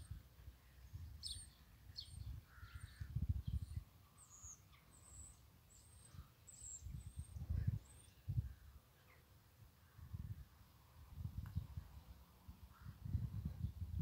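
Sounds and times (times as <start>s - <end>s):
wind rumble on microphone: 0.0s - 4.0s, 6.6s - 8.8s, 9.8s - 14.0s
small birds chirping: 0.0s - 14.0s.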